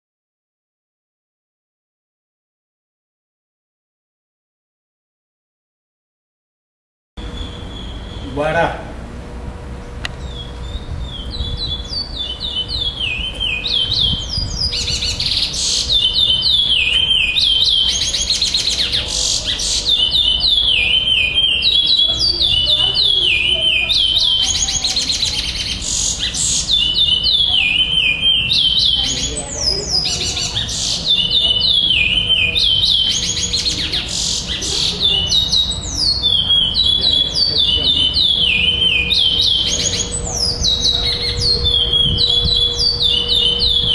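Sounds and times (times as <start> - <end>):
finch singing whistled notes: 7.3 - 8.4, 10.2 - 43.9.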